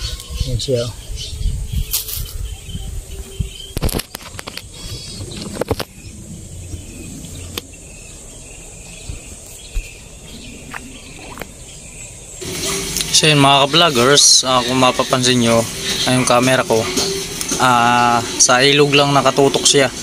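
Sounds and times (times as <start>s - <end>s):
footsteps on dry ground: 8.8s - 12.2s.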